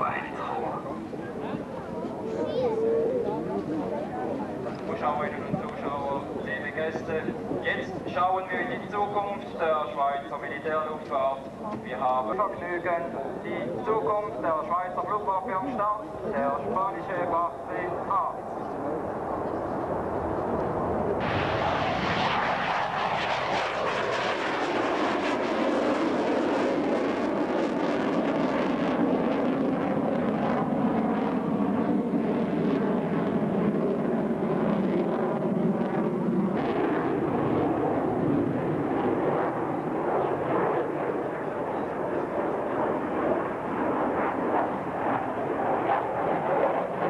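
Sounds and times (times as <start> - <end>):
fighter jet flying past: 16.6 - 47.0.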